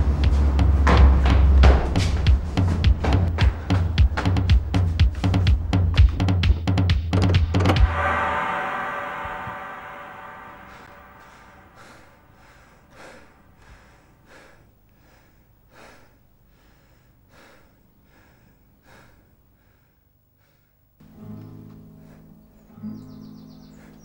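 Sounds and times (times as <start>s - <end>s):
low string instrument notes: 0.0s - 13.1s.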